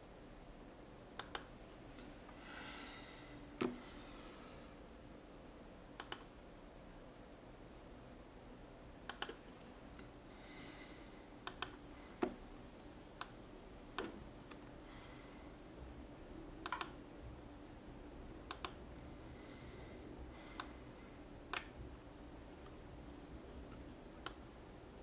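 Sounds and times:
faint background noise: 0:00.0 - 0:25.0
computer mouse clicking: 0:01.2 - 0:01.5, 0:06.0 - 0:06.3, 0:09.1 - 0:09.4, 0:11.4 - 0:12.4, 0:16.6 - 0:17.0, 0:18.5 - 0:18.8, 0:21.5 - 0:21.8, 0:24.2 - 0:24.4.

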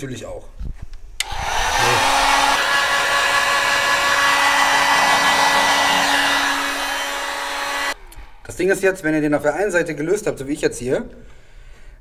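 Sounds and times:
heat gun blowing: 0:01.2 - 0:08.0.

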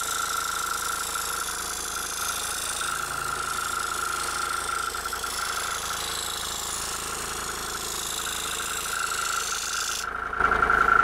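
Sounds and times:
saw blade cutting hiss: 0:00.0 - 0:10.0
scroll saw motor hum and whine: 0:00.0 - 0:11.0.

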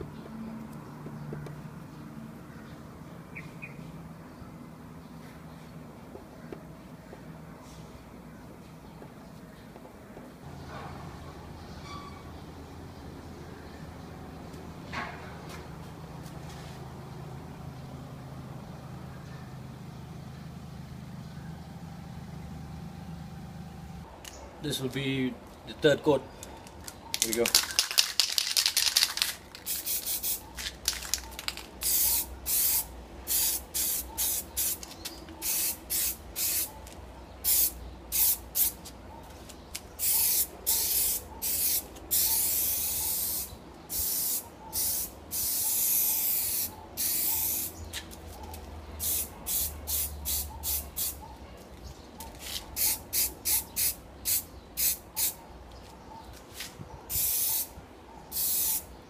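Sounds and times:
aerosol spray can hissing: 0:29.6 - 0:30.4, 0:31.8 - 0:36.7, 0:40.0 - 0:47.7, 0:49.0 - 0:51.2, 0:57.1 - 0:57.7, 0:58.4 - 0:58.8.

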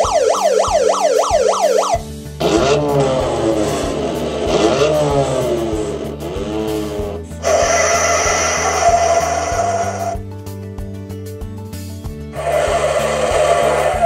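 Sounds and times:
siren-like wail: 0:00.0 - 0:05.8, 0:07.4 - 0:10.2, 0:12.4 - 0:14.0
sliding electronic tones: 0:00.0 - 0:10.0.

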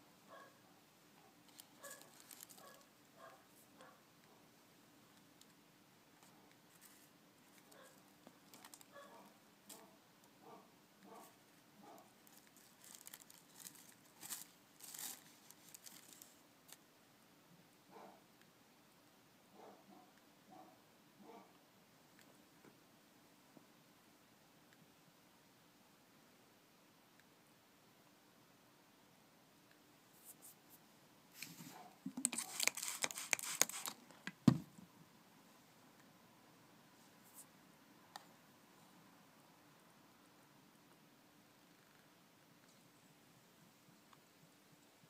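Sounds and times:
scratching and rustling on plastic: 0:01.4 - 0:03.7, 0:06.2 - 0:09.9, 0:11.9 - 0:16.8, 0:31.4 - 0:34.2.

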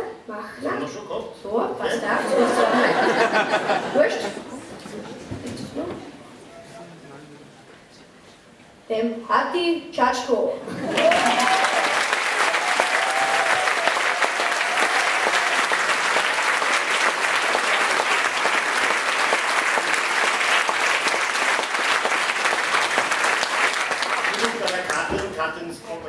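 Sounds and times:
crowd applauding: 0:10.7 - 0:25.3.

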